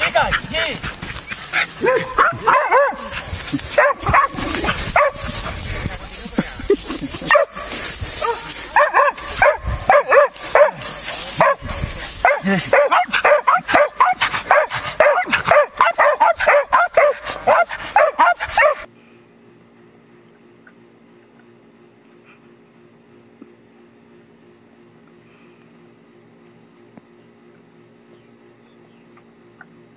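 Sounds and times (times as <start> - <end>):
dogs barking rapidly: 0.0 - 5.8, 7.0 - 18.9.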